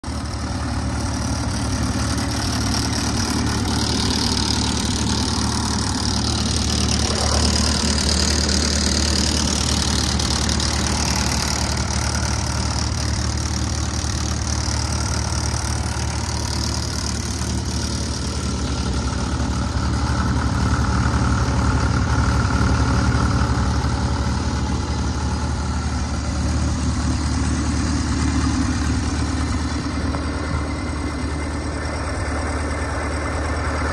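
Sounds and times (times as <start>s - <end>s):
tractor diesel engine idling: 0.0s - 33.9s.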